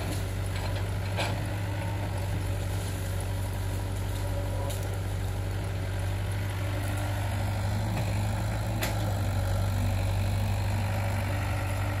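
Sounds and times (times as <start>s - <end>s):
excavator diesel engine humming: 0.0s - 12.0s.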